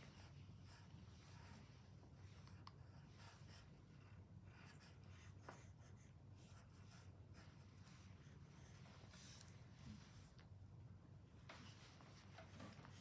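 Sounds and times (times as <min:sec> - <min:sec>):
pencil scratching on paper: 0:00.0 - 0:10.3
low steady hum: 0:00.0 - 0:13.0.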